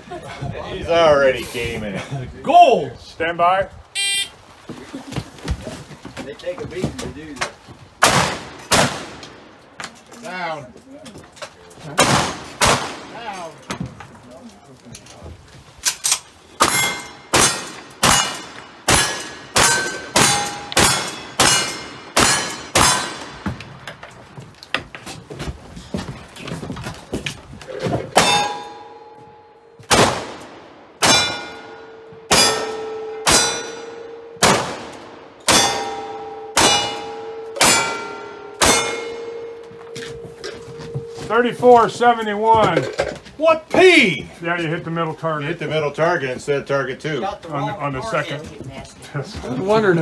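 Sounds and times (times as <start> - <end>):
rifle shots: 8.0 - 9.5, 12.0 - 13.2, 16.6 - 23.4, 29.9 - 31.5, 34.4 - 36.0
steel target clanging: 16.0 - 23.3, 28.2 - 29.5, 31.0 - 34.8, 35.4 - 43.0.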